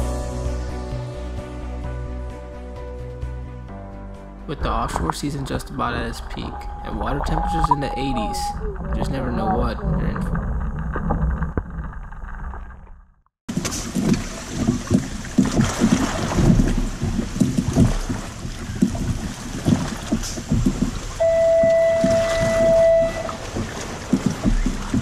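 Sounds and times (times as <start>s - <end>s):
water slapping against kayak hull: 13.5s - 25.0s
wind on microphone: 13.9s - 25.0s.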